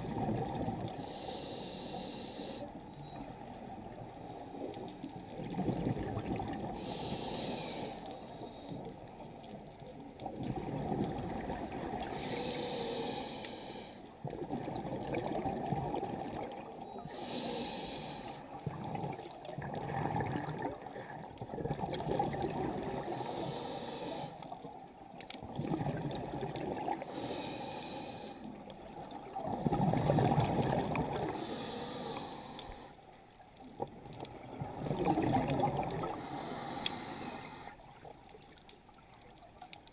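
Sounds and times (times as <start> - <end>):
exhale bubbling underwater: 0.0 - 0.9, 5.3 - 7.0, 10.2 - 12.3, 14.2 - 17.8, 18.6 - 23.4, 25.4 - 27.3, 28.9 - 32.2, 33.7 - 38.0
regulator inhale hiss: 0.9 - 2.8, 6.8 - 9.0, 12.0 - 14.1, 17.0 - 18.6, 23.0 - 24.5, 27.0 - 28.6, 31.3 - 33.0, 36.0 - 37.8.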